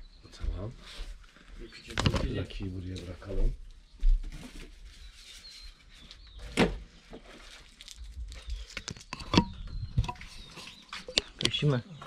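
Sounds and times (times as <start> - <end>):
faint bird chirps: 0.0 - 7.2
handling noises: 1.3 - 3.0.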